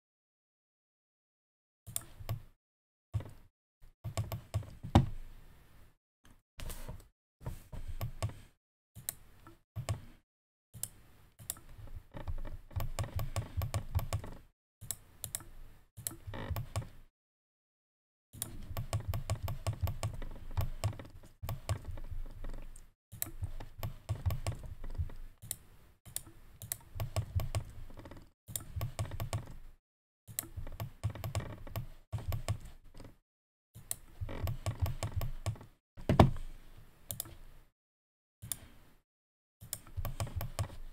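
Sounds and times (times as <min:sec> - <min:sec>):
computer mouse clicks: 0:01.9 - 0:02.4, 0:09.0 - 0:10.2, 0:10.8 - 0:11.8, 0:12.7 - 0:16.9, 0:18.4 - 0:21.9, 0:22.6 - 0:27.8, 0:28.5 - 0:29.6, 0:30.3 - 0:33.1, 0:33.8 - 0:35.7, 0:37.1 - 0:37.4, 0:38.4 - 0:38.7, 0:39.6 - 0:40.8
keyboard typing: 0:18.4 - 0:22.0, 0:23.2 - 0:27.8, 0:28.5 - 0:29.6, 0:30.3 - 0:32.8, 0:33.9 - 0:35.6, 0:39.7 - 0:40.8.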